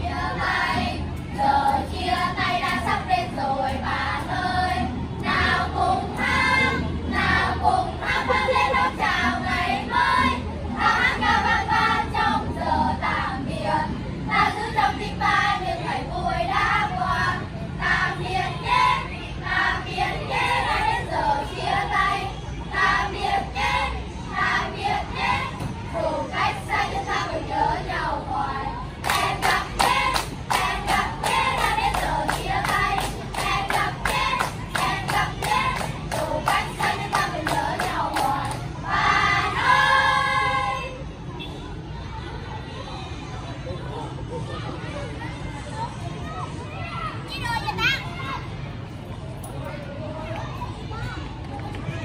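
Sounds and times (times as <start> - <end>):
children singing in unison: 0.0 - 41.0.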